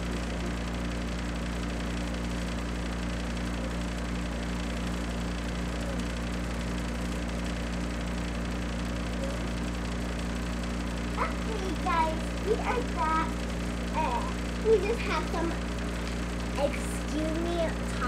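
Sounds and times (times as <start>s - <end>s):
steady low hum: 0.0s - 18.0s
constant low tones: 11.0s - 18.0s.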